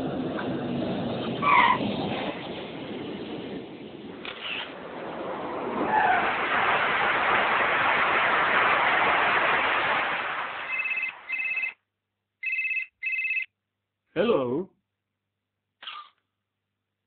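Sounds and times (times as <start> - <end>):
telephone ringing: 10.7 - 13.5.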